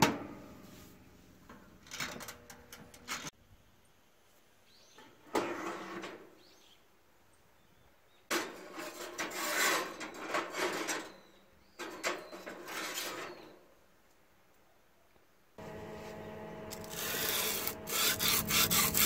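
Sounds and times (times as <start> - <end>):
knife scraping across wire rack: 8.6 - 11.2, 16.7 - 19.0.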